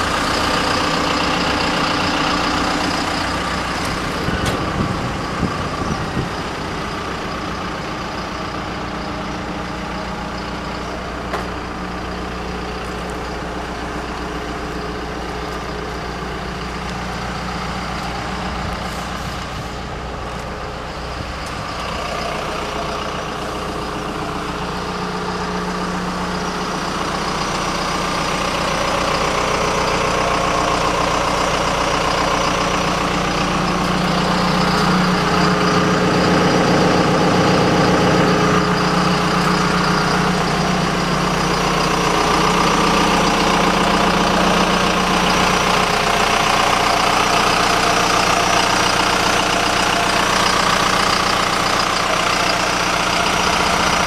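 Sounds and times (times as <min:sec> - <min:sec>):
excavator diesel engine idling: 0:00.0 - 0:54.0.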